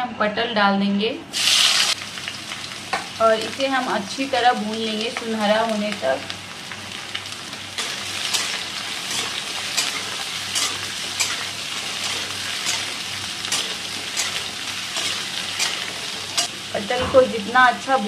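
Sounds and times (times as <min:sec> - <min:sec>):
vegetables sizzling in oil: 0:01.3 - 0:18.0
metal spatula scraping pan: 0:07.8 - 0:17.4.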